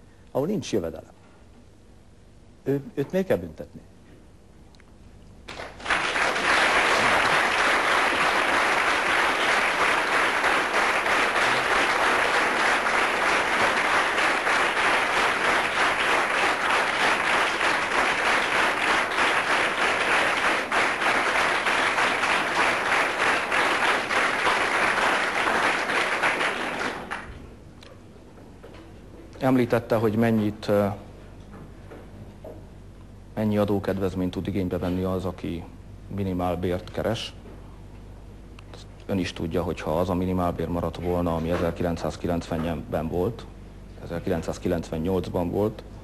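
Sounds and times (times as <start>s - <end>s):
audience applauding: 5.5s - 27.4s.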